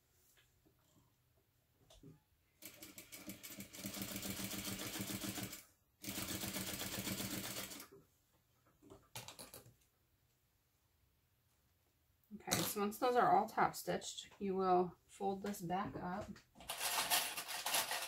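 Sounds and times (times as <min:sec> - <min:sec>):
sewing machine stitching: 0:02.6 - 0:07.9, 0:16.6 - 0:18.0.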